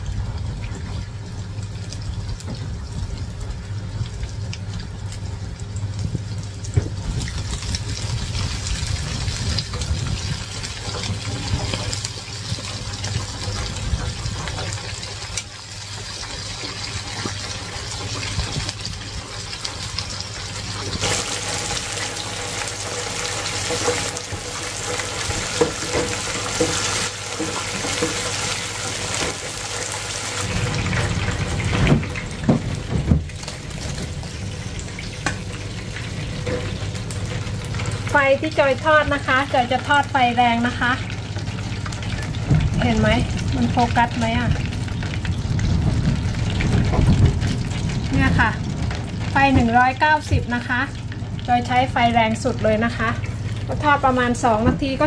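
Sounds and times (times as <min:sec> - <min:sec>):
oil bubbling and sizzling: 0:00.0 - 0:55.0.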